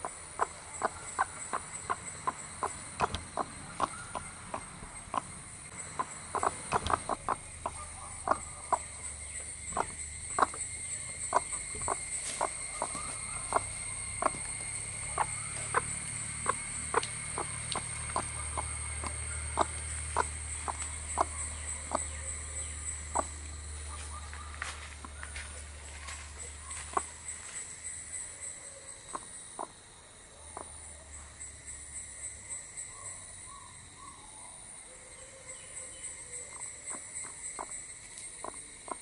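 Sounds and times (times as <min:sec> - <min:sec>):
hen clucking softly: 0:00.0 - 0:09.0, 0:09.7 - 0:10.7, 0:11.3 - 0:22.1, 0:29.1 - 0:29.7
high-pitched background whine: 0:00.0 - 0:39.0.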